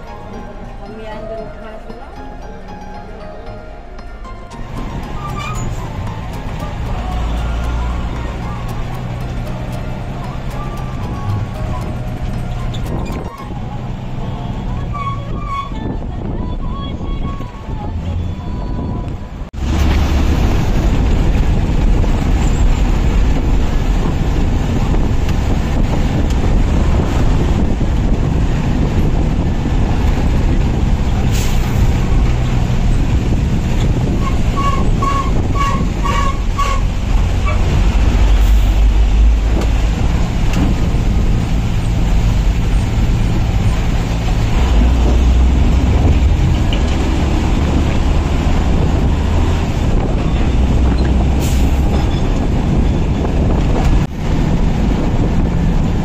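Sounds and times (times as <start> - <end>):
bus engine and road rumble: 0.0 - 56.0
wind rushing past window: 15.2 - 56.0.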